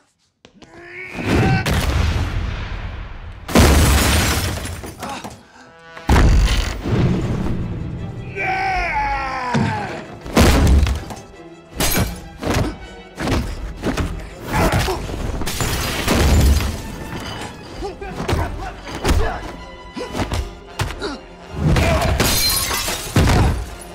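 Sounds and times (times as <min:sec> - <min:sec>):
glass and tableware shattering: 0:03.6 - 0:05.4, 0:11.8 - 0:12.2, 0:15.4 - 0:17.8, 0:22.2 - 0:23.9
dramatic film score: 0:04.6 - 0:23.9
punch and kick impacts: 0:10.3 - 0:11.1, 0:23.1 - 0:23.8.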